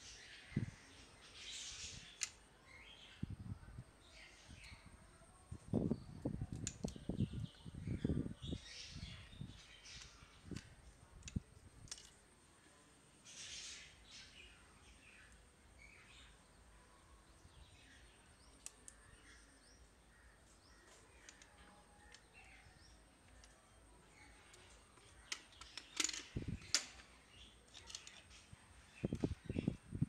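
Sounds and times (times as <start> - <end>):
plastic parts clicking and rubbing: 9.9 - 12.2, 20.9 - 22.5, 23.2 - 23.6, 24.4 - 28.5.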